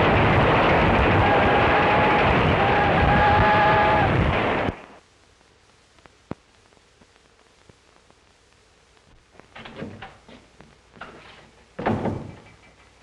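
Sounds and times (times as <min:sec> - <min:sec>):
faint film hiss: 0:02.9 - 0:13.0
indistinct knocks and shuffling: 0:09.1 - 0:13.0.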